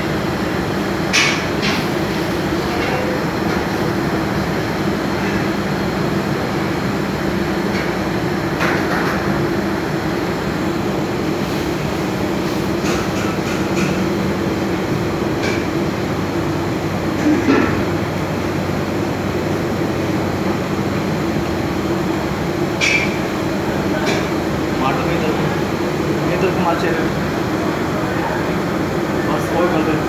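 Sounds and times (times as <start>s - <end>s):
kitchen machinery drone: 0.0s - 30.0s.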